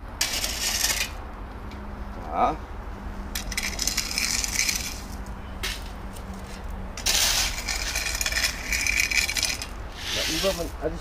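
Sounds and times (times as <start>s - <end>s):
gravel crunching and clattering: 3.3s - 9.8s.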